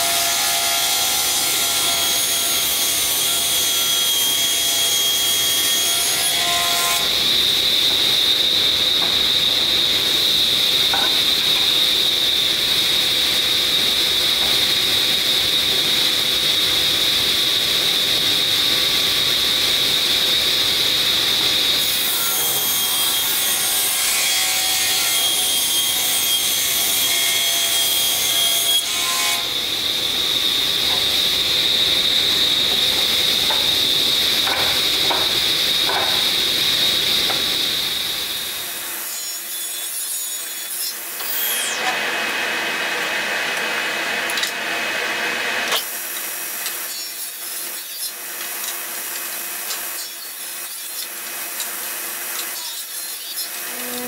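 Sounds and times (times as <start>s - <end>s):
table saw cutting wood: 0.0s - 54.0s.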